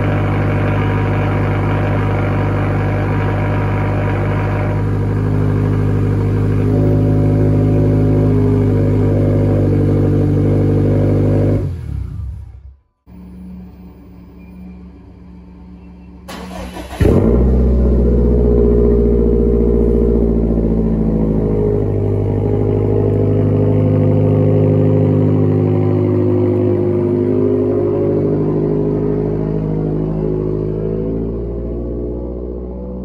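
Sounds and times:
car engine high idle: 0:00.0 - 0:30.8
car engine cranking: 0:16.3 - 0:20.9.

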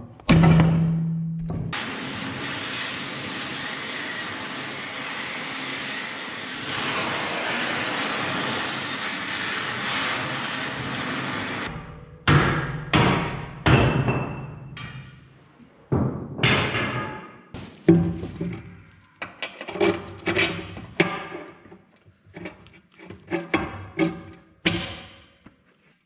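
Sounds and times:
cutting torch hissing: 0:01.8 - 0:11.7.

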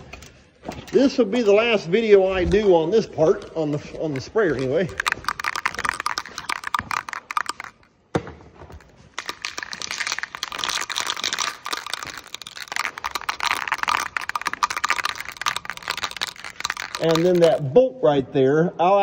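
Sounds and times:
aerosol can ball rattling: 0:03.2 - 0:07.9, 0:08.7 - 0:17.7.

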